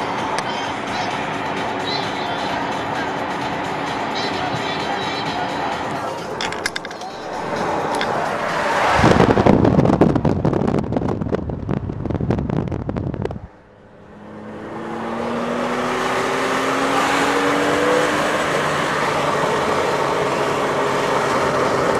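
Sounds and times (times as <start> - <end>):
car engine accelerating: 0.0 - 21.9
road noise: 0.0 - 21.9
wind buffeting at car window: 7.6 - 13.7.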